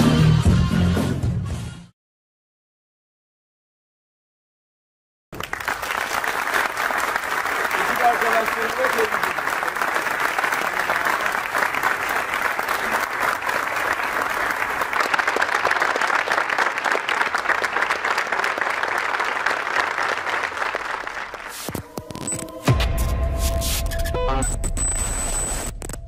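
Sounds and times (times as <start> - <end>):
crowd applauding: 5.4 - 22.4.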